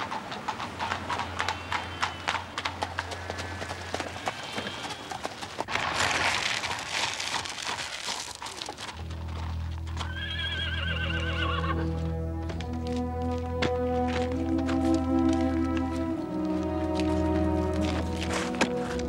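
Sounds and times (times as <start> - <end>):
hooves clip-clopping: 0.0 - 19.0
wheels crunching on gravel: 0.0 - 19.0
music with low held notes: 9.0 - 10.1, 11.1 - 19.0
horse whinnying: 10.0 - 12.0.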